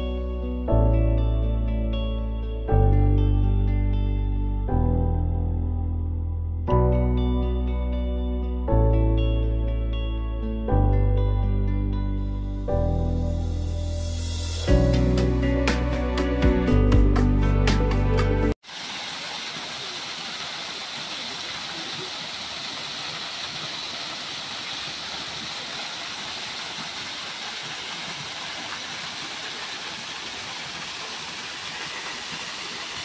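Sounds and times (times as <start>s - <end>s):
background music: 0.0s - 18.6s
waterfall splashing into pool: 18.6s - 33.0s.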